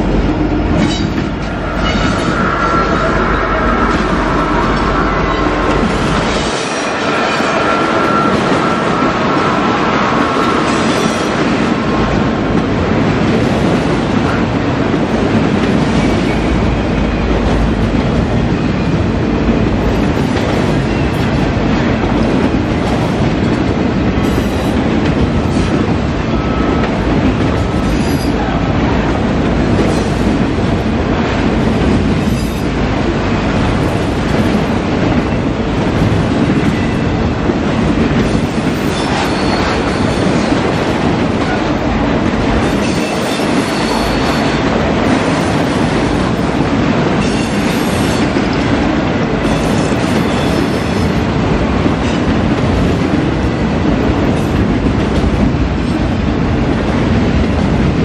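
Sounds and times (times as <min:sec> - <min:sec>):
freight train wheels clattering: 0:00.0 - 0:58.0
wheels squealing on rail: 0:00.7 - 0:11.6, 0:24.2 - 0:24.8, 0:25.5 - 0:28.7, 0:29.8 - 0:30.4, 0:32.2 - 0:32.7, 0:38.2 - 0:41.9, 0:42.6 - 0:48.4, 0:49.4 - 0:51.2.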